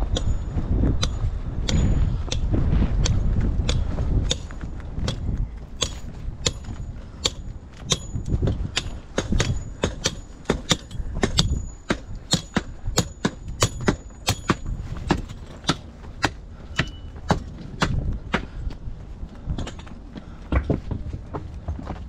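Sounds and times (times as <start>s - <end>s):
footsteps on stone path: 0.0s - 9.4s, 17.1s - 22.0s
low rumble: 0.0s - 10.0s.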